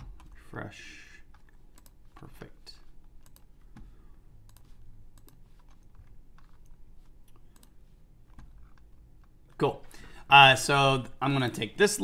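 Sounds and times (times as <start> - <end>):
mouse and keyboard clicking: 4.4 - 8.9.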